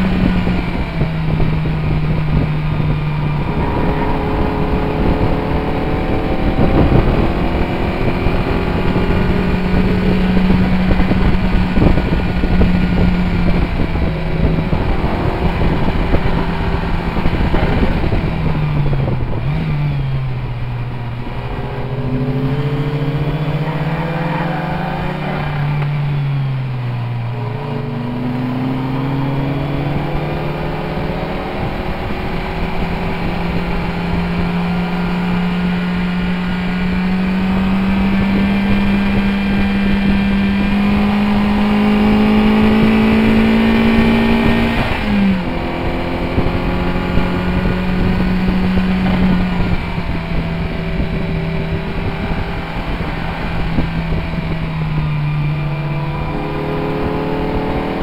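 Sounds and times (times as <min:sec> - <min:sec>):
car engine pulling hard: 0:00.0 - 0:58.0
road and wind noise: 0:00.0 - 0:58.0.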